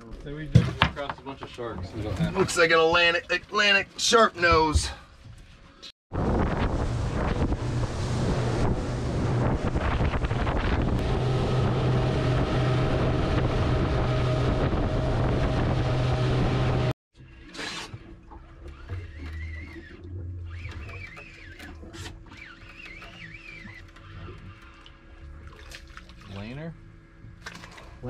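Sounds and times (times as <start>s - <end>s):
boat engine hum: 1.6s - 28.0s
wind buffeting microphone: 6.1s - 16.9s.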